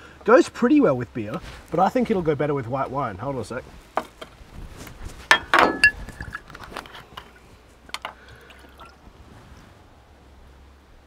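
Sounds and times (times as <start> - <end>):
glass bottle knocks and clink: 5.3 - 6.3
wine pouring into mug: 8.2 - 9.0.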